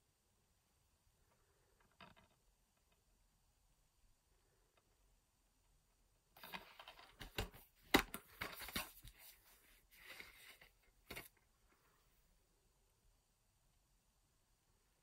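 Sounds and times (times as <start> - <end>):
plastic case rustling and scraping: 6.4 - 11.4.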